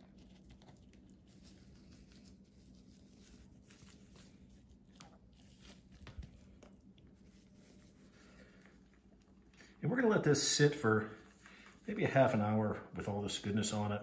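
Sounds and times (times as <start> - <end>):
hands rubbing raw chicken: 0.0 - 12.6.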